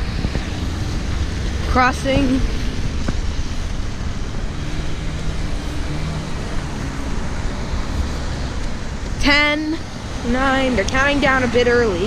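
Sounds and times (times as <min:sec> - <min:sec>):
cars passing: 0:00.0 - 0:12.0.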